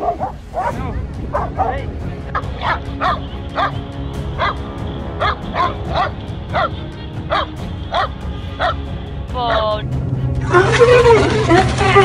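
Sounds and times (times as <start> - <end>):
dog barking: 0.0 - 1.7, 2.4 - 3.8, 4.4 - 4.6, 5.2 - 8.8.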